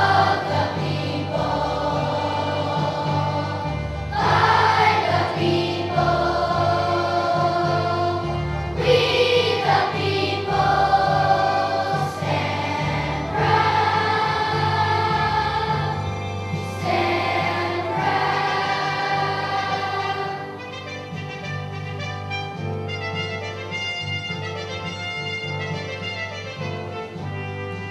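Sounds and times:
children's choir singing: 0.0s - 21.1s.

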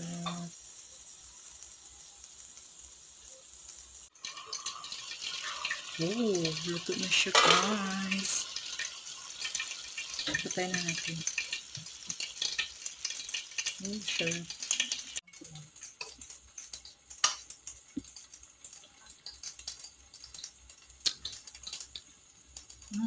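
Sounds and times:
vegetables simmering in a wok: 0.0s - 23.0s.

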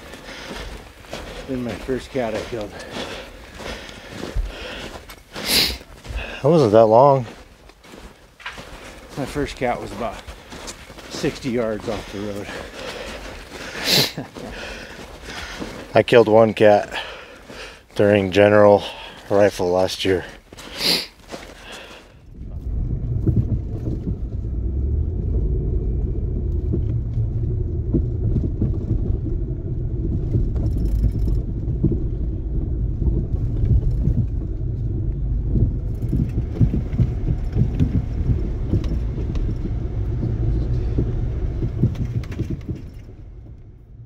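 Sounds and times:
engine and tyre rumble: 0.0s - 44.0s
small clicks and rattles: 29.9s - 32.3s.

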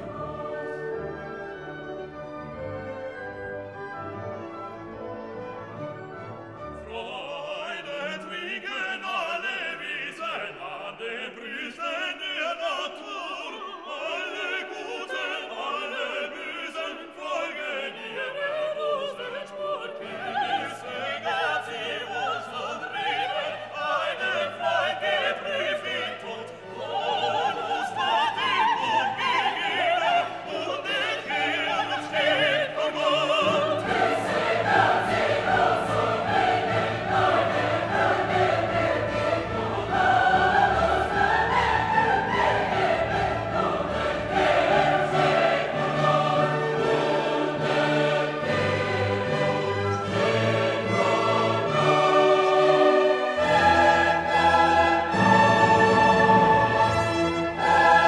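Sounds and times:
operatic singing: 0.0s - 2.4s, 6.7s - 58.0s
orchestra playing: 0.0s - 8.7s, 24.6s - 58.0s
choir singing: 0.0s - 58.0s.

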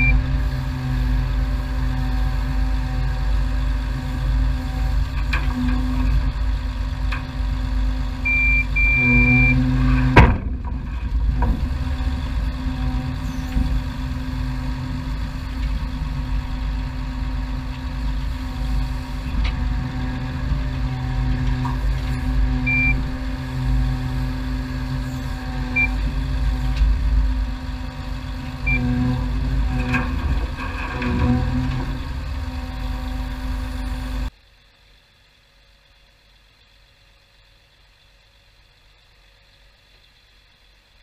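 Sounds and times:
diesel engine running: 0.0s - 35.0s
short high beeps: 8.3s - 9.6s, 22.7s - 23.0s
loud sharp clunk: 10.0s - 11.6s.

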